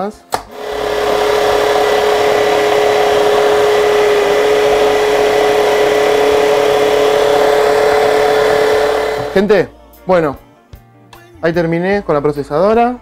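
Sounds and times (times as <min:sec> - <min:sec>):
food processor motor humming: 0:00.4 - 0:09.5.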